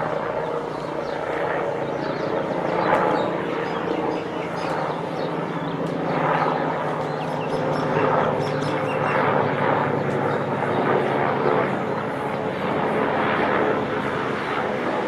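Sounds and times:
helicopter flying overhead: 0.0 - 15.0.

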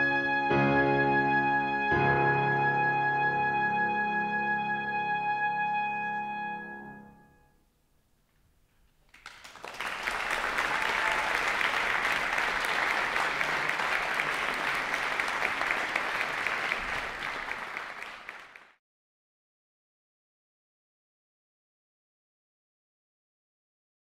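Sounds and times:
audience applauding: 9.0 - 18.8.

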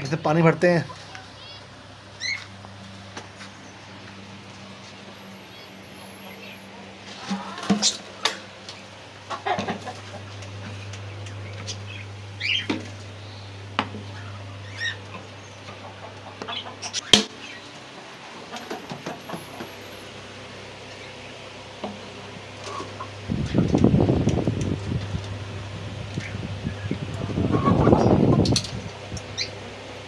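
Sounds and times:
steady low hum: 0.0 - 30.0
short bird calls: 10.7 - 15.6.

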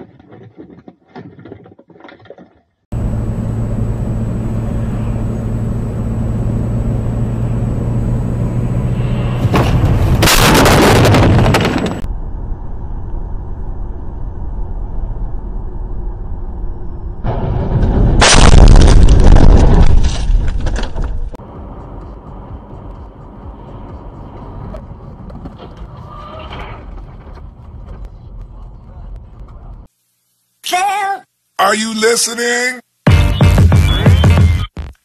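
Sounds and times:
car engine and road noise: 2.8 - 18.3, 19.9 - 29.9
loud collision crash: 9.0 - 12.1, 17.2 - 21.0.

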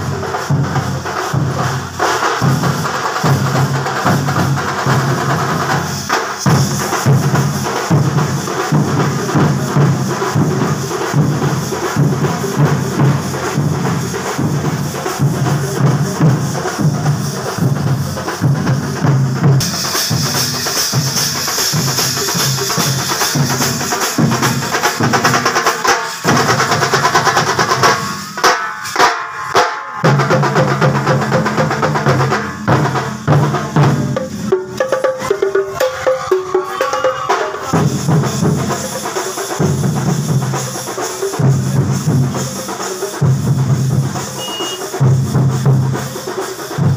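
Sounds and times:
large drums beating: 0.0 - 46.9.

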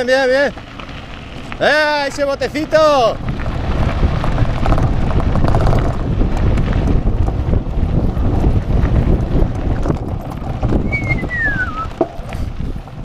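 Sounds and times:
bike tyres crunching on gravel: 0.0 - 13.0
wind buffeting microphone: 0.7 - 13.0
short falling squeal: 10.9 - 11.9.

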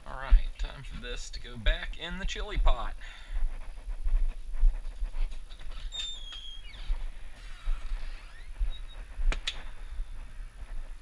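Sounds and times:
footsteps: 0.0 - 11.0
door hinge squeaking and creaking: 5.7 - 8.6.

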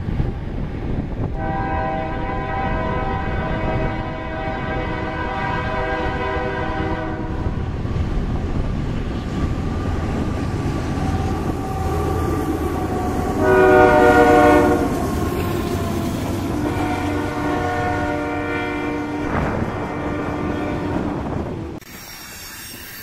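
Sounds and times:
locomotive rumble: 0.0 - 21.8
train air horn: 1.4 - 7.6, 13.4 - 21.4.

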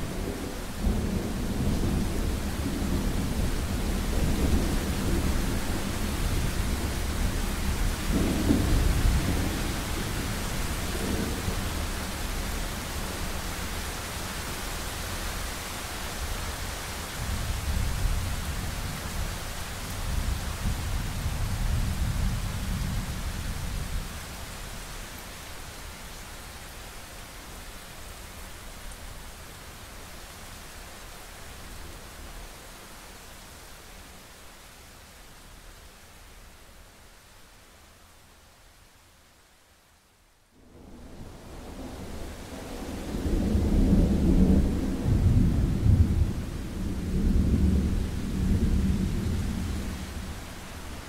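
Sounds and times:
rain hiss: 0.0 - 51.0
rolling thunder: 40.8 - 50.3.

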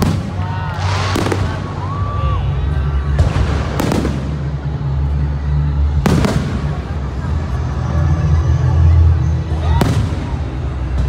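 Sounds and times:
fireworks bursting with crackle: 0.0 - 2.4, 3.0 - 5.1, 5.8 - 7.5, 9.6 - 11.0.

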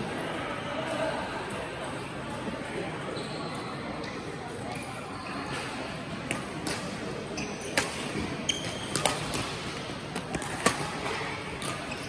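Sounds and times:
murmur of voices: 0.0 - 12.0
shoes squeaking on court floor: 3.0 - 3.9, 7.3 - 9.6, 11.2 - 12.0
rackets striking shuttlecock: 7.6 - 12.0.

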